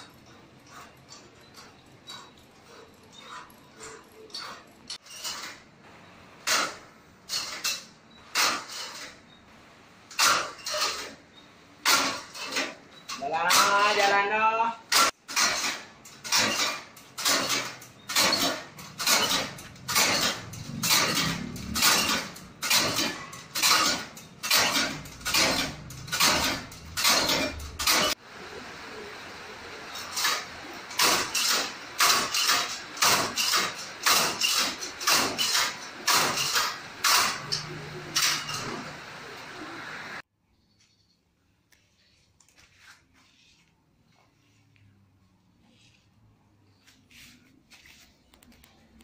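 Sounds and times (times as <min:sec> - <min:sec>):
rice transplanter clanking: 0:15.3 - 0:28.2, 0:29.9 - 0:39.7.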